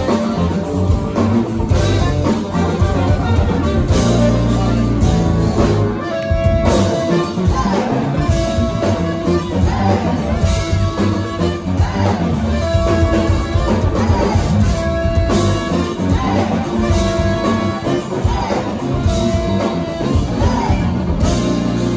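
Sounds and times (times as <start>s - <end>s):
brass funk band playing: 0.0s - 21.9s
horn riff: 0.0s - 21.9s.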